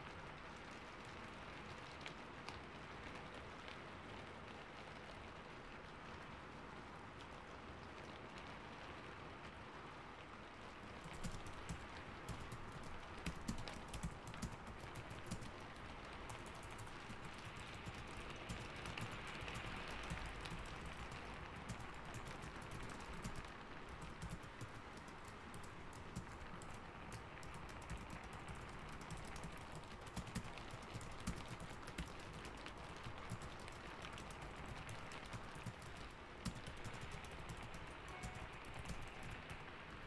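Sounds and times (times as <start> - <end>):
steady rain: 0.0 - 40.0
keyboard typing: 10.9 - 39.8.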